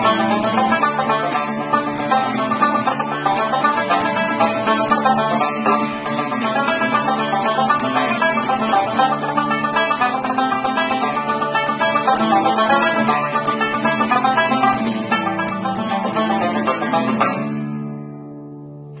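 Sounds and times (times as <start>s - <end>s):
banjo picking fast notes: 0.0s - 18.8s
acoustic guitar chords: 0.0s - 19.0s.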